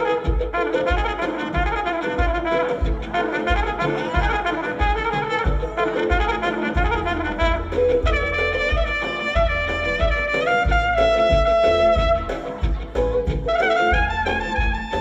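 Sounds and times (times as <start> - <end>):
live band with trumpet lead: 0.0 - 15.0.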